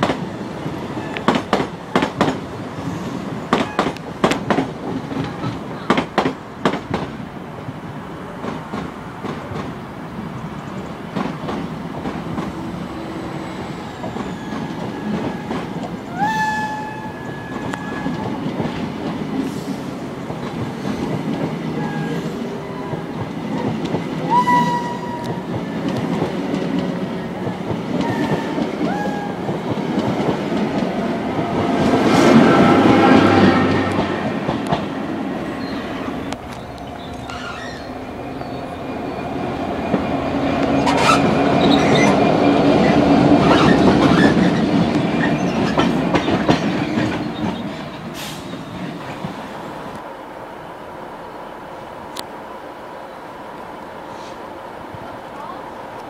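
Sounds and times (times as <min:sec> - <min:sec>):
train wheels clattering on rail: 0:00.0 - 0:50.1
electric locomotive tones: 0:12.2 - 0:20.2, 0:21.6 - 0:26.2
wheel squeals: 0:13.2 - 0:18.4, 0:37.1 - 0:38.6.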